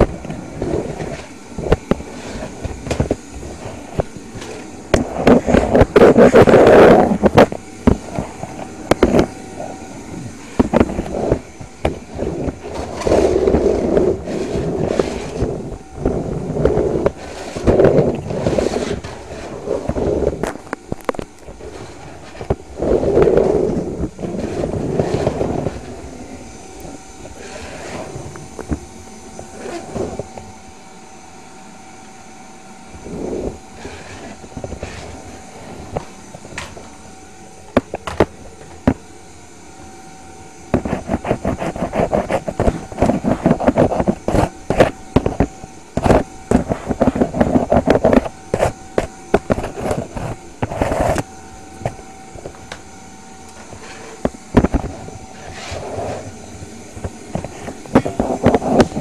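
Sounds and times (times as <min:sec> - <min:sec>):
debris rattling through vacuum: 0:00.0 - 0:30.8
vacuum cleaner motor whine: 0:00.0 - 0:59.0.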